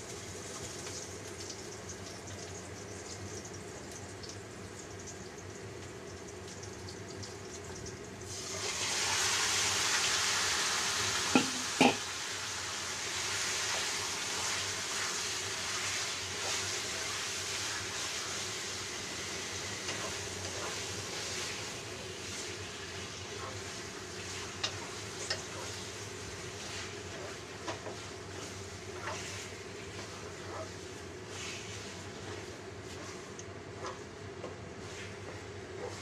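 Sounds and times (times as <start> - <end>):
chicken sizzling in hot oil: 0.0 - 36.0
faint frying of garlic: 0.0 - 36.0
knocks against pan: 11.4 - 12.0.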